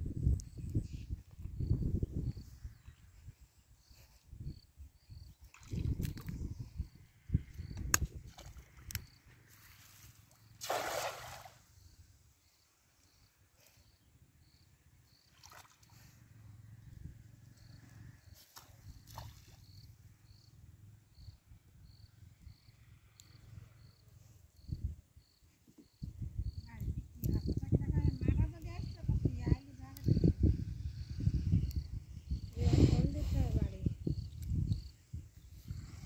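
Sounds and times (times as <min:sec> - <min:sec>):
insect chirping: 0:00.1 - 0:36.0
cast net splashing into water: 0:10.6 - 0:11.7, 0:15.3 - 0:15.9, 0:18.6 - 0:19.6.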